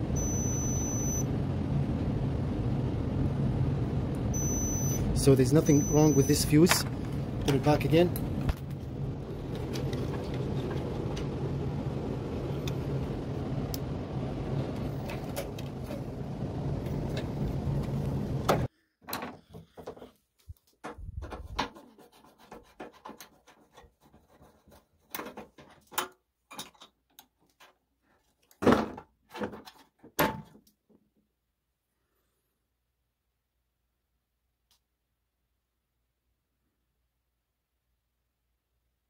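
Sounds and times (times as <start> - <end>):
low rumble with hum: 0.0 - 18.7.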